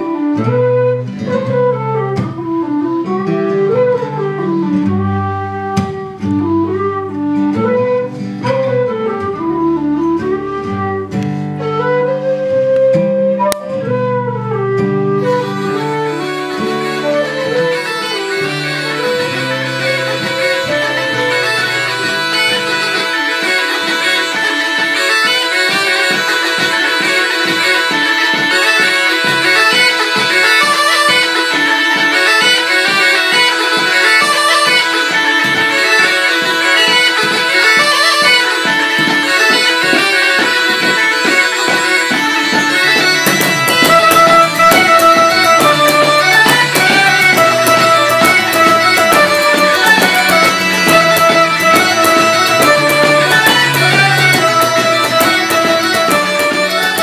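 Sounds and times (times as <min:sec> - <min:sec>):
bagpipes playing: 0:00.0 - 0:57.0
percussive beat: 0:15.7 - 0:57.0.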